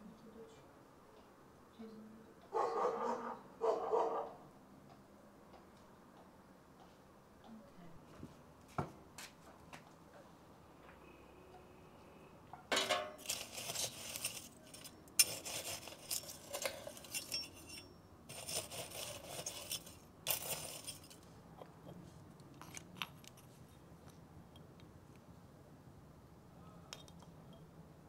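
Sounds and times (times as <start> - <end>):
metal tongs scraping charcoal: 12.7 - 21.3.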